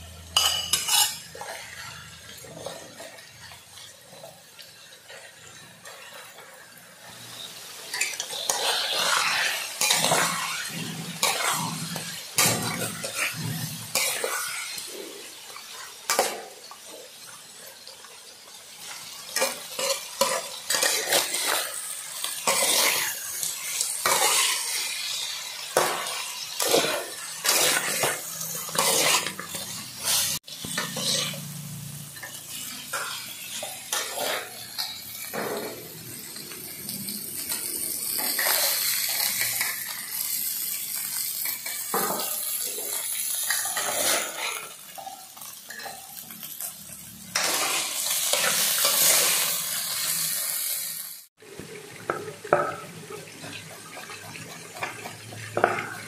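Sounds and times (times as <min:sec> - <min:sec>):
oil sizzling: 0:00.0 - 0:56.0
metal spatula scraping a wok: 0:00.4 - 0:03.2, 0:07.1 - 0:16.5, 0:18.8 - 0:51.0.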